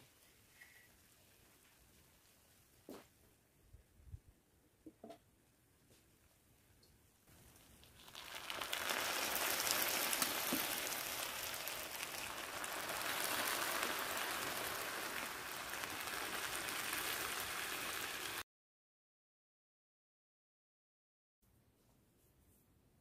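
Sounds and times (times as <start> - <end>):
liquid sizzling on pastry: 7.3 - 18.4.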